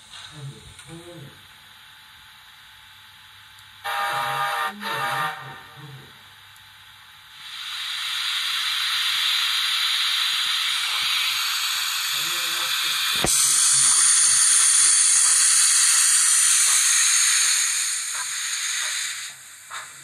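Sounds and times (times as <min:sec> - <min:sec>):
model train steam whistle toots: 0:03.8 - 0:05.7
steam hiss: 0:07.3 - 0:20.0.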